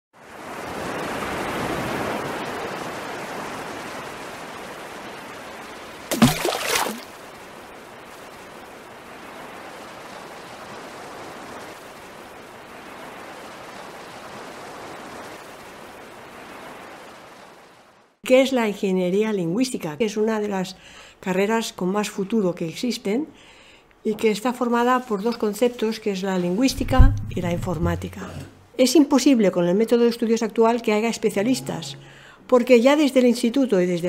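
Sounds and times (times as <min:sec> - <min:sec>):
rushing water noise: 0:00.4 - 0:17.7, 0:26.6 - 0:28.5.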